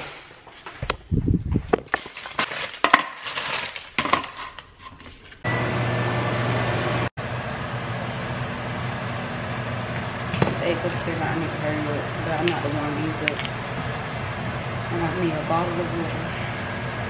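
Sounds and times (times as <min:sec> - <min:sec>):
microwave beep: 0:05.5 - 0:07.0
microwave oven humming: 0:05.5 - 0:17.0.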